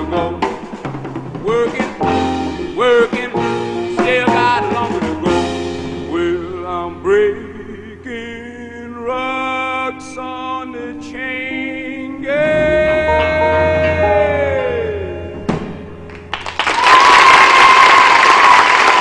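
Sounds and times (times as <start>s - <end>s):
man singing: 0.0s - 0.8s, 1.4s - 15.6s
rock band playing: 0.0s - 6.2s, 12.3s - 16.6s.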